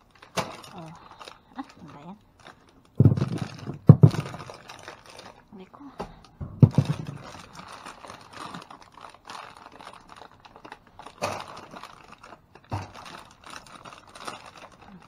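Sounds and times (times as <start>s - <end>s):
objects being handled and sorted: 0.0s - 15.0s
loud thump: 3.0s - 4.4s, 6.4s - 7.3s.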